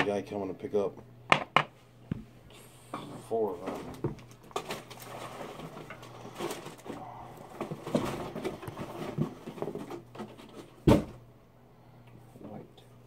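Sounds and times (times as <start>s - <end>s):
cardboard packaging rustling: 3.6s - 10.8s.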